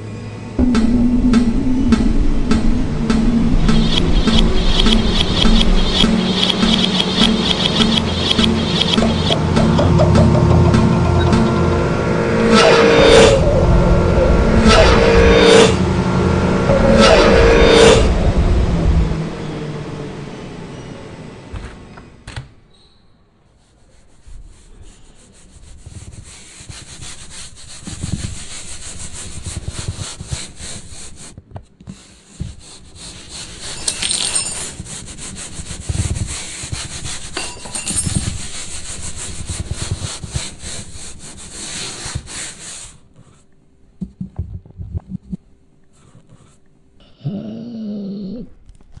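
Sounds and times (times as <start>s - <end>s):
low knocks: 0.6s - 7.0s
rough rubbing noise: 0.6s - 19.1s, 23.5s - 43.4s.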